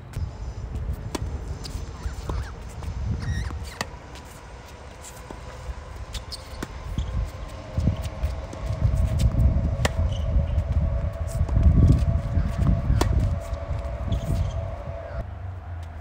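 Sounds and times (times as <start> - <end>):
steady low rumble: 0.0 - 16.0
tennis ball bouncing: 0.1 - 13.4
tennis ball racket hits: 0.8 - 10.2.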